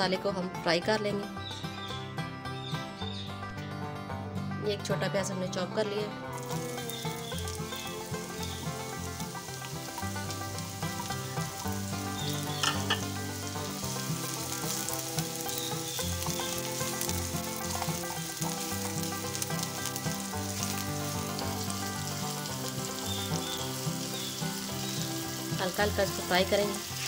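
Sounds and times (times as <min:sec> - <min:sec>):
onion sizzling in hot oil: 0:06.3 - 0:27.0.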